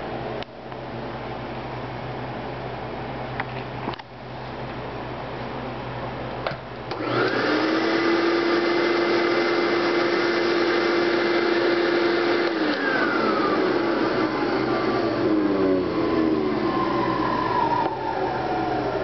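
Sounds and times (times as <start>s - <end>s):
vacuum cleaner switch click: 6.5s - 7.5s, 12.4s - 13.0s
vacuum cleaner motor whine: 6.9s - 19.0s.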